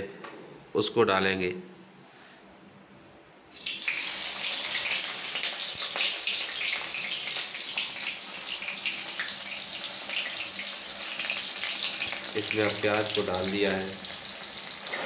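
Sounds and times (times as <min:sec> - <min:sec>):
onion sizzling in hot oil: 0:03.5 - 0:15.0.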